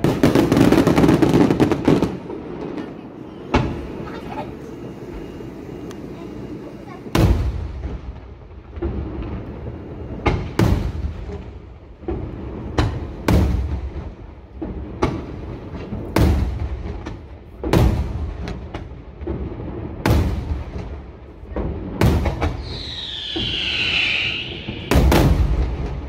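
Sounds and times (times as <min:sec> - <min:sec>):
fireworks booming: 0:00.0 - 0:26.0
fireworks cracking: 0:00.0 - 0:26.0
high wavering whistle: 0:22.6 - 0:25.6.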